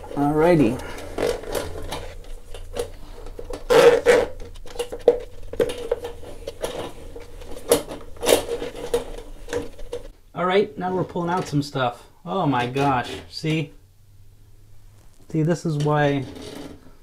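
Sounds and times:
drain cable rattling and scraping: 0.0s - 10.1s, 12.5s - 13.5s, 15.8s - 16.9s.

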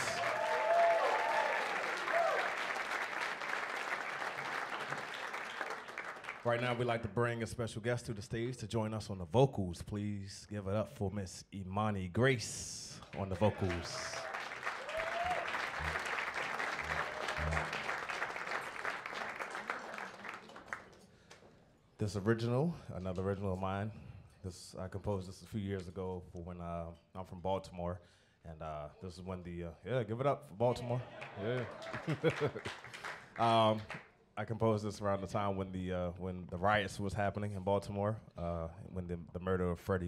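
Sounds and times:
crowd calls: 0.0s - 2.6s, 13.2s - 20.4s
audience applauding: 0.0s - 6.8s, 13.1s - 21.4s, 30.9s - 34.1s
short low notes: 15.7s - 16.1s, 16.8s - 17.9s.

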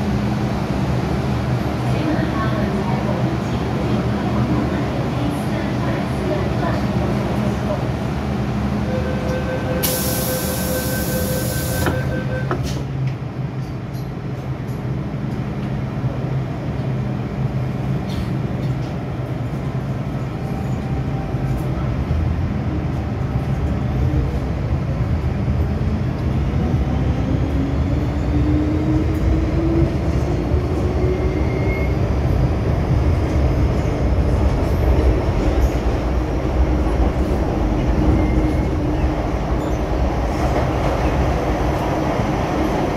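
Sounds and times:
train wheels rumbling on track: 0.0s - 42.9s
two-tone warning signal: 8.9s - 12.6s.

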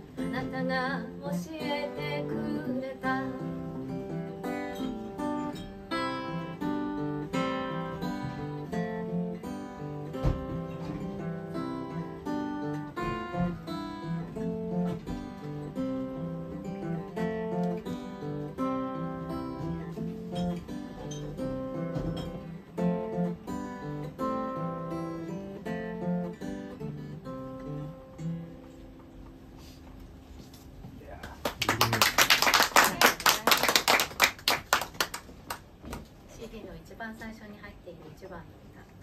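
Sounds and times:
acoustic guitar strumming: 0.0s - 29.9s.

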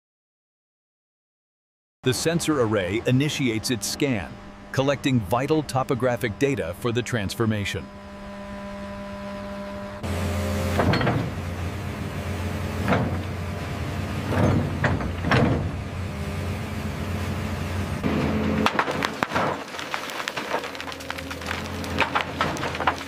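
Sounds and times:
excavator engine running: 2.0s - 23.0s
steady hum: 2.1s - 10.7s
concrete crackling and snapping: 18.5s - 23.0s.

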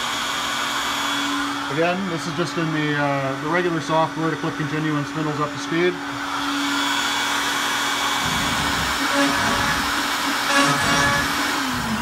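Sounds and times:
router spindle whining: 0.0s - 12.0s
bit cutting into wood: 6.2s - 12.0s.

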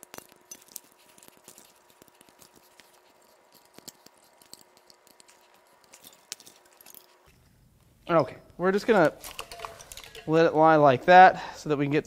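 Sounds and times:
faint steady hum: 0.0s - 12.0s
plastic connectors clicking: 9.2s - 10.3s.

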